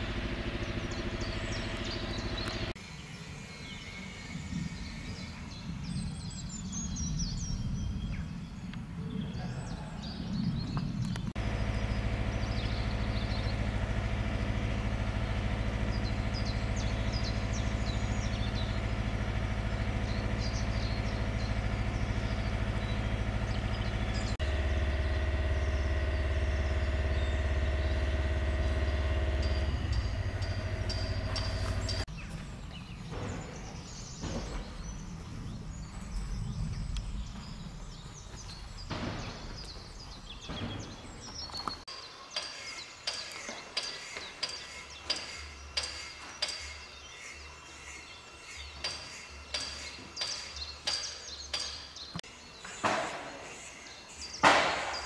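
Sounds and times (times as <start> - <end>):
diesel locomotive engine idling: 0.0 - 2.8, 11.3 - 32.1
birds chirping: 0.0 - 55.0.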